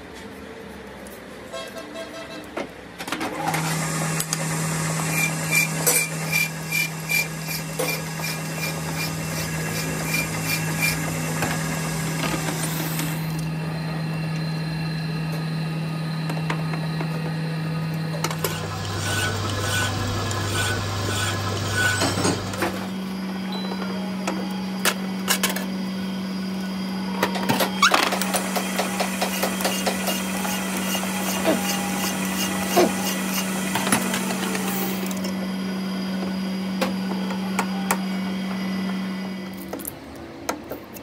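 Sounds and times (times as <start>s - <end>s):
lathe motor hum: 17.5s - 23.3s, 28.2s - 39.4s.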